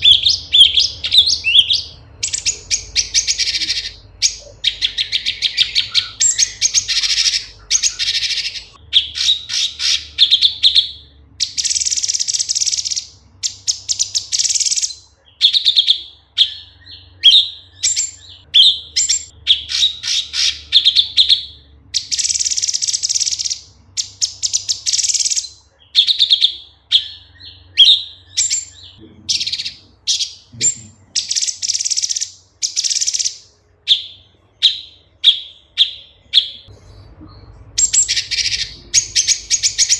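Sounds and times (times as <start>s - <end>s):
bird singing: 0.0s - 39.9s.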